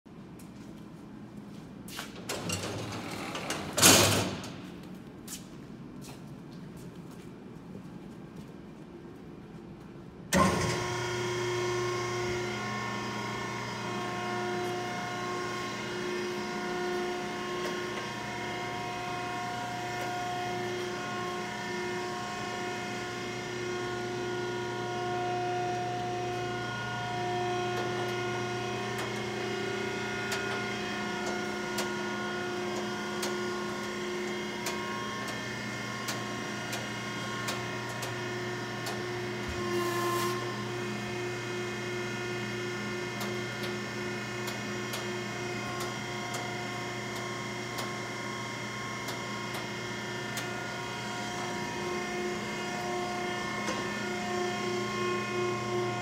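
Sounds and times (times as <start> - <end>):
hydraulic power unit humming: 9.8 - 56.0.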